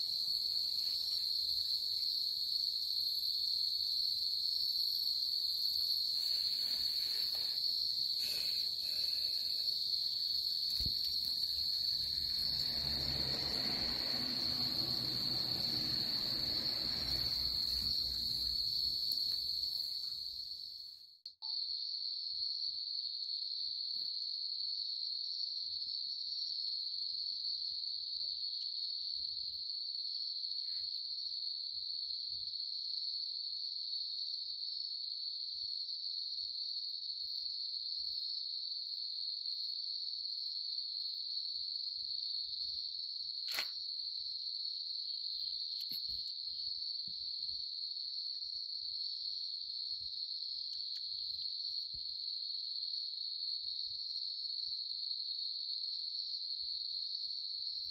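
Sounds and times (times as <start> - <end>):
night insect chorus: 0.0 - 57.9
sharp click: 43.5 - 43.8.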